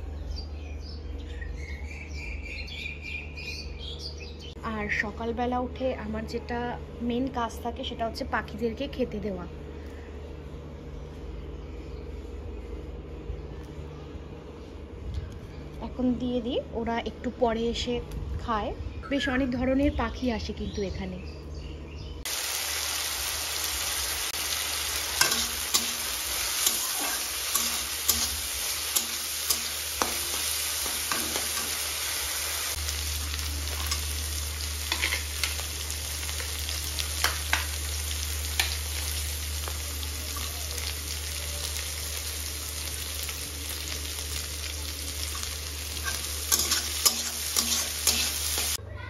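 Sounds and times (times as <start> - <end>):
vegetables sizzling in oil: 22.2 - 48.8
metal spatula scraping pan: 46.0 - 48.8.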